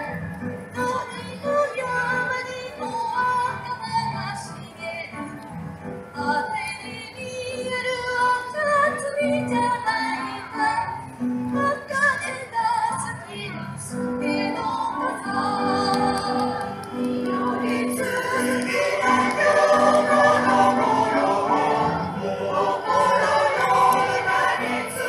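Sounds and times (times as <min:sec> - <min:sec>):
choir singing over loudspeakers: 0:13.9 - 0:25.0
held accompanying notes: 0:15.4 - 0:25.0.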